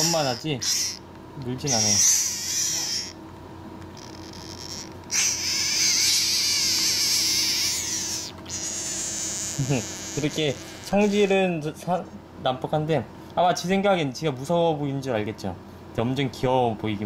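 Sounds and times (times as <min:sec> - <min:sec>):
frog screaming: 0:00.0 - 0:01.0, 0:01.6 - 0:03.2, 0:04.0 - 0:11.3.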